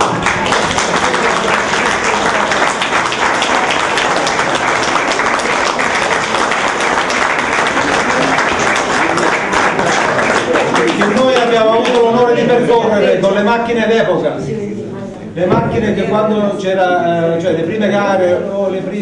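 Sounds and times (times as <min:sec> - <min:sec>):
people applauding: 0:00.0 - 0:12.8.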